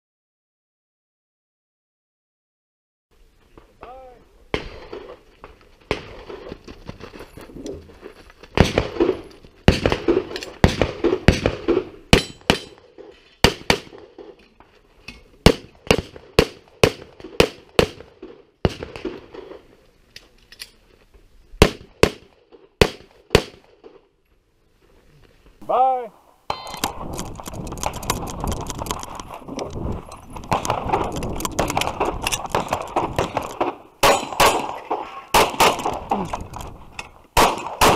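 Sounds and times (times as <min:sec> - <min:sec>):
pistol shots: 0:08.6 - 0:14.4, 0:15.4 - 0:19.6, 0:21.6 - 0:24.0, 0:30.5 - 0:36.3, 0:37.4 - 0:37.9.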